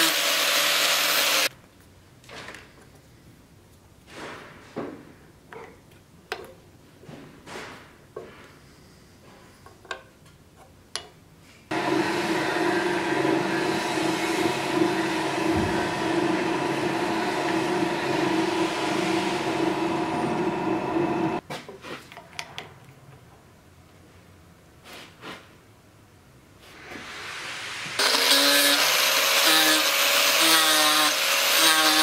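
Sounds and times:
drill press boring wood: 0.0 - 1.5, 11.7 - 21.4, 28.0 - 32.0.

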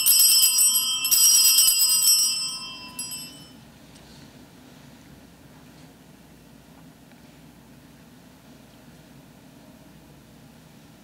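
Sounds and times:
small bells jangling: 0.0 - 3.6.

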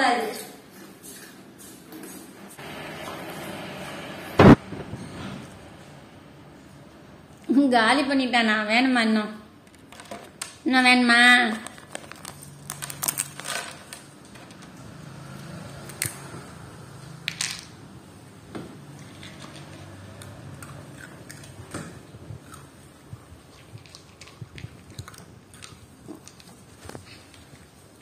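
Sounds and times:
dog crunching crisp snack: 11.6 - 14.6, 19.0 - 27.8.

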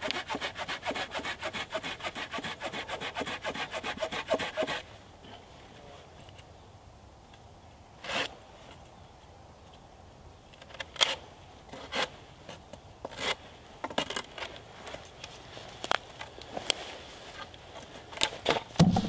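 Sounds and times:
handsaw cutting wood: 0.0 - 4.8.

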